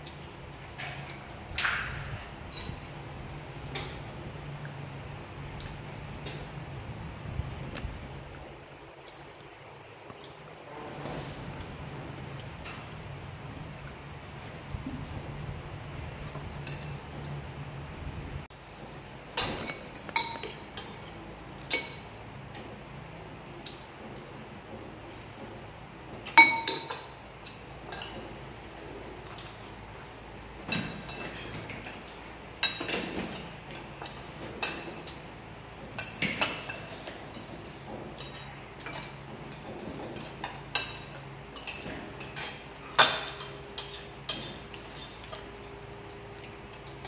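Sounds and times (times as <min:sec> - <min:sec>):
cutlery clinking on plates: 0:19.4 - 0:22.1, 0:26.2 - 0:28.4, 0:30.7 - 0:35.3, 0:36.0 - 0:45.5.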